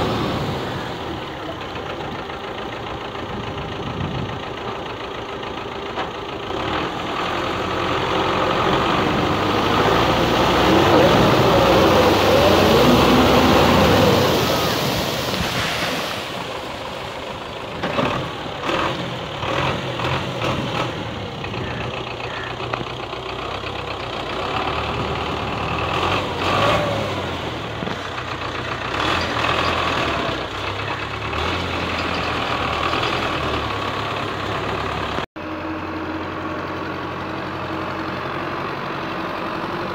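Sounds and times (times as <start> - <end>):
tractor diesel engine under load: 0.0 - 39.9
water churning around tyres: 8.1 - 21.4.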